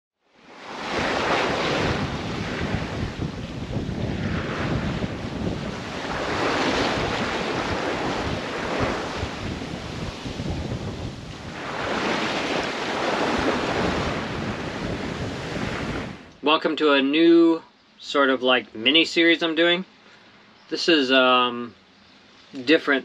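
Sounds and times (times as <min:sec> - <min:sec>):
water splashing along boat hull: 0:00.6 - 0:16.3
wind buffeting microphone: 0:00.6 - 0:16.4.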